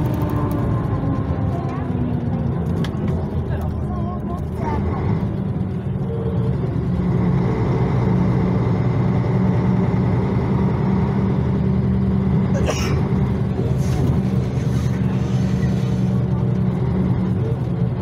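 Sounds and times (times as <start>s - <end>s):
diesel engine drone: 0.0s - 18.0s.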